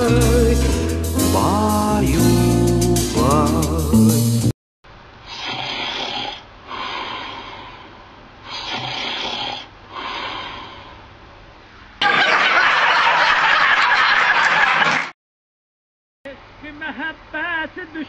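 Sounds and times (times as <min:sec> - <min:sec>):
man snoring: 0:05.3 - 0:11.0.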